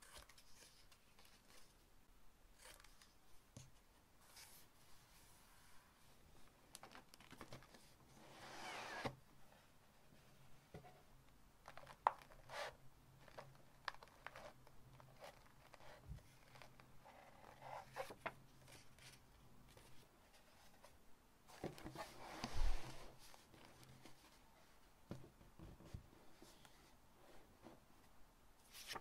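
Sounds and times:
paper sliding rustle: 0:21.8 - 0:24.4, 0:28.7 - 0:29.0
paper rustling and crinkling: 0:28.7 - 0:29.0.

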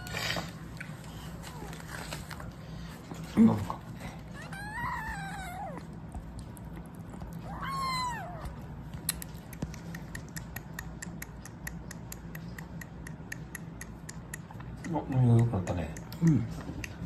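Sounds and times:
kitten mewing: 0:04.3 - 0:06.2, 0:07.1 - 0:09.2
kitten suckling wet clicks: 0:04.6 - 0:17.0.

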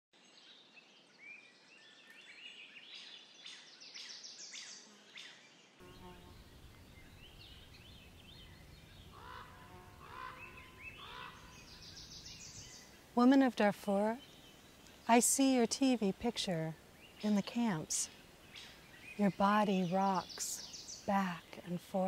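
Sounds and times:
small birds chirping and trilling: 0:00.2 - 0:22.0
bird calling: 0:05.8 - 0:13.0
low outdoor rumble: 0:06.3 - 0:13.2.

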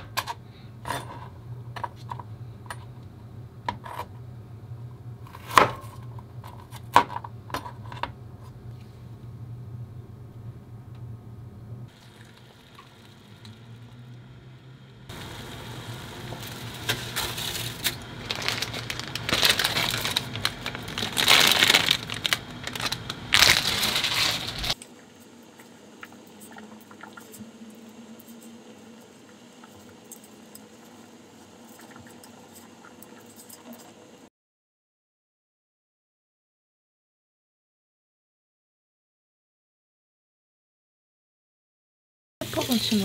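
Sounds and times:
material crinkling and rustling: 0:16.4 - 0:24.8.

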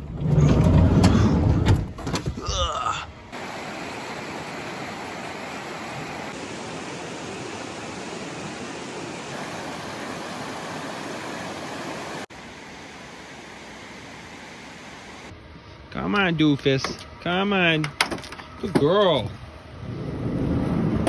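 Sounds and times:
river rushing over rocks: 0:03.4 - 0:12.5.

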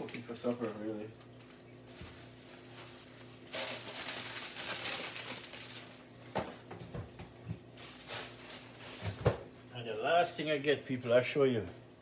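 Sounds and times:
plastic bag rustling: 0:01.4 - 0:06.3, 0:07.7 - 0:09.6.

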